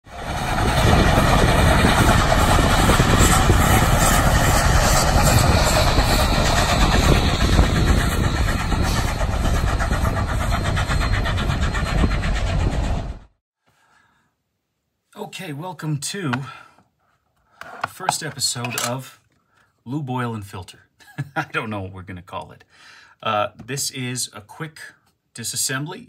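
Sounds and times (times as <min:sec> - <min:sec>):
engine rumbling: 0:00.1 - 0:13.3.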